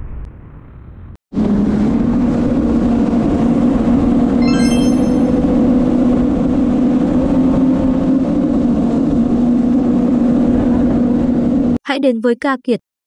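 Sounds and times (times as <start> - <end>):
short sparkling chime: 4.4 - 5.5.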